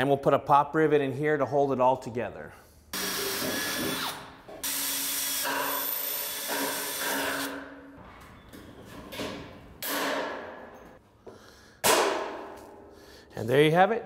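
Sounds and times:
drill boring through metal: 3.0s - 7.5s.

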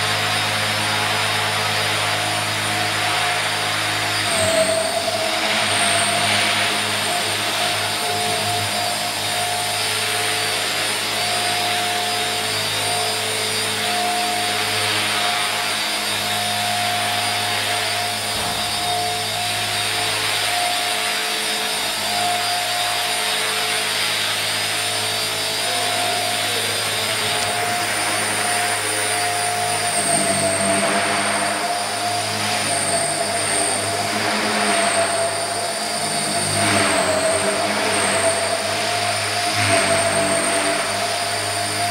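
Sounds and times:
model helicopter motor whine: 0.0s - 41.9s.

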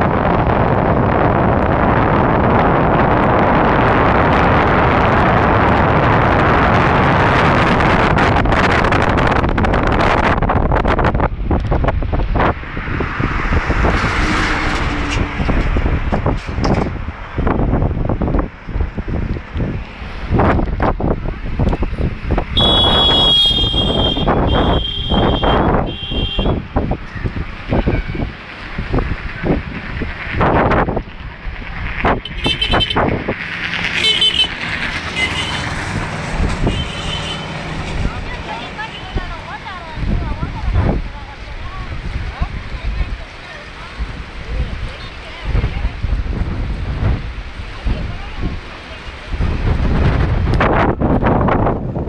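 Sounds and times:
road and engine rumble: 0.0s - 52.0s
wind buffeting microphone: 0.0s - 52.0s
people's voices: 36.6s - 50.2s.

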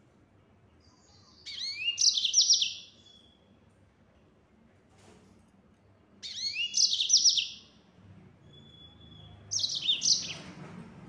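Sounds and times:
finch singing high chirps: 0.8s - 3.4s, 6.2s - 7.8s, 8.4s - 10.5s.

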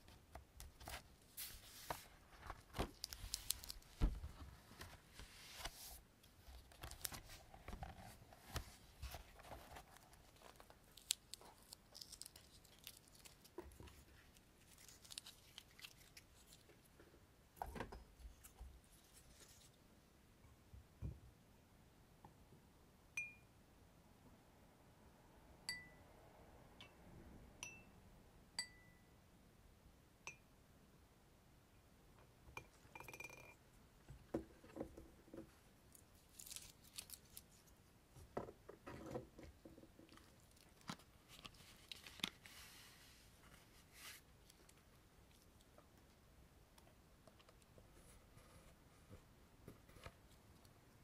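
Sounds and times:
scratching and rustling: 0.7s - 17.0s.

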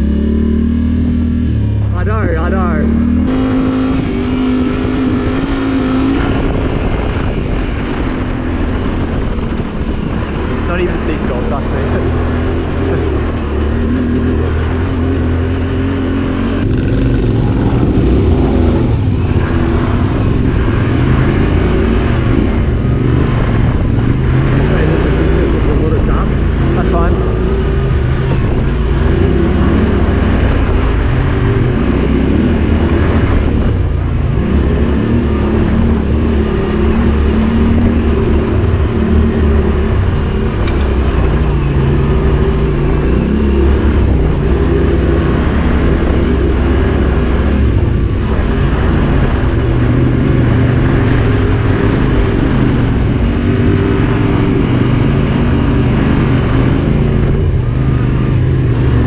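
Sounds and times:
motorcycle engine revving: 0.0s - 59.0s
wind noise: 0.0s - 59.0s.

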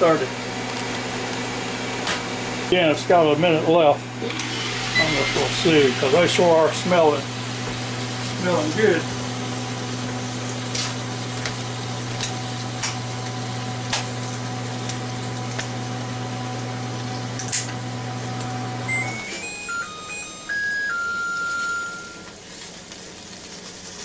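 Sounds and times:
air fryer fan humming: 0.0s - 24.0s
steaks popping and sizzling: 4.6s - 16.2s, 21.3s - 24.0s
electronic beeps: 18.9s - 22.3s.

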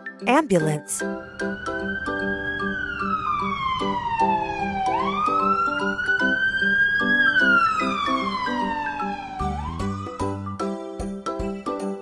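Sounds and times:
children's music with steady beat: 0.3s - 1.0s, 10.2s - 12.0s
emergency vehicle siren wailing: 1.1s - 10.6s.

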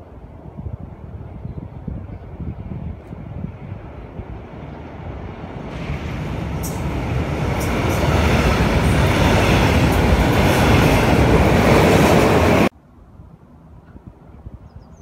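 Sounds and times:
train wheels on rails: 4.2s - 12.7s.

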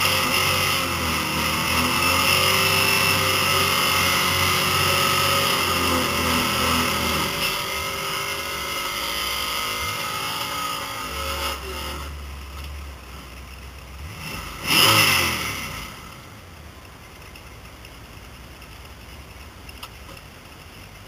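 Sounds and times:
engine revving burst: 0.0s - 12.2s, 14.0s - 16.2s
car engine idling: 0.0s - 21.0s.

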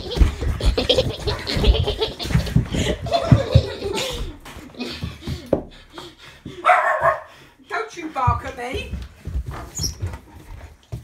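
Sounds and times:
person laughing under breath: 0.0s - 6.7s.

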